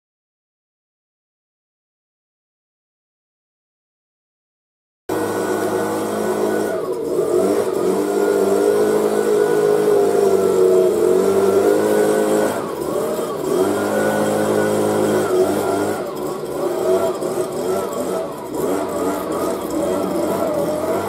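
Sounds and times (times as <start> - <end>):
leaf blower running: 5.1 - 21.0.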